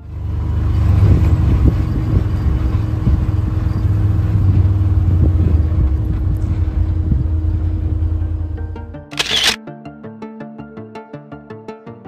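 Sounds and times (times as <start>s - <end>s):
vehicle engine rumble: 0.0s - 9.6s.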